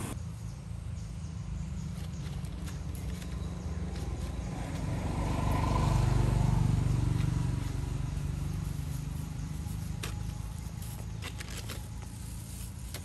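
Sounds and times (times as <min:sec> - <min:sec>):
vehicle engine driving past: 0:02.8 - 0:11.2.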